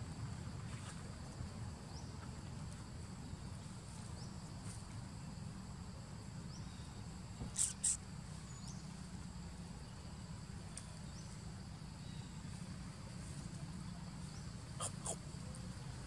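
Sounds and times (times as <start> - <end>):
insect chirps: 1.5 - 16.0
insects droning high-pitched: 3.1 - 16.0
sharp very high chirps: 7.6 - 8.0.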